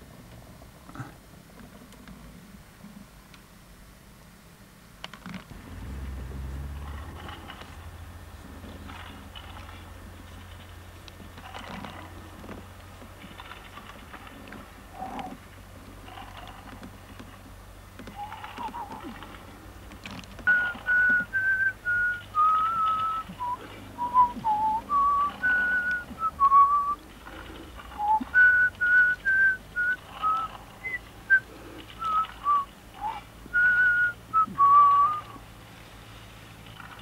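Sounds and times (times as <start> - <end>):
person whistling a tune: 20.5 - 27.0, 28.0 - 35.4.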